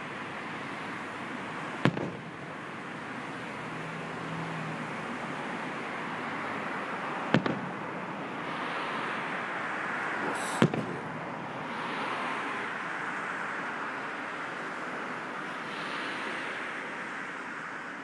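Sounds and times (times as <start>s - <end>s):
background noise: 0.0s - 18.0s
firework bangs with echo: 1.8s - 2.4s, 7.3s - 7.8s, 10.4s - 11.1s.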